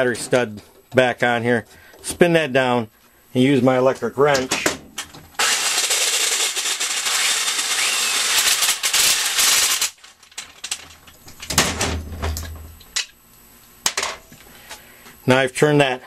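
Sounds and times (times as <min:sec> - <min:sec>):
electric wrench running: 0:05.4 - 0:10.1.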